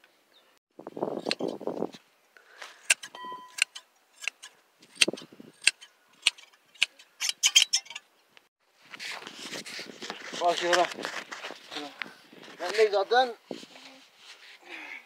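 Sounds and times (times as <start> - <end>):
shears snipping: 2.6 - 8.0
brief ringing tone: 3.1 - 3.6.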